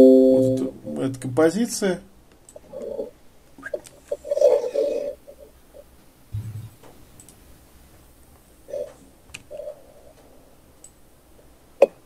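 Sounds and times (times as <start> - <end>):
short muffled sounds: 6.4 - 6.9.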